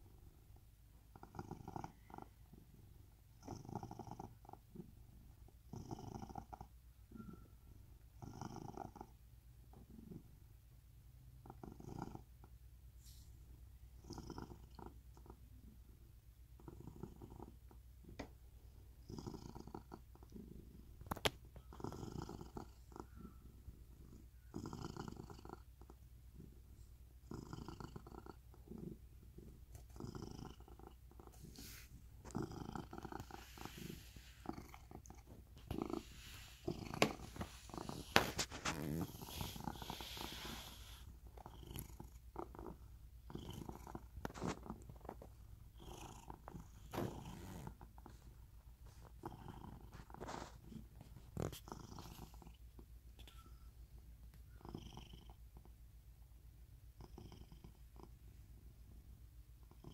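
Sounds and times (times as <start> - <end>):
cat purring: 0.0 - 59.9
rustling: 31.2 - 41.4, 43.8 - 45.4, 49.8 - 52.5.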